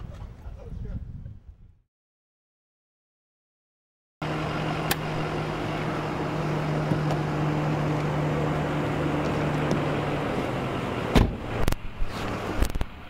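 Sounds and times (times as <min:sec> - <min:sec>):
car idling: 0:04.2 - 0:13.0
outdoor background noise: 0:04.2 - 0:13.0.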